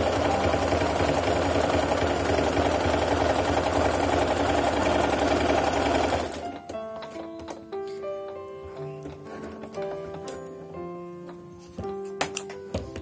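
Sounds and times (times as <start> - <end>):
sewing machine clattering: 0.0 - 6.6.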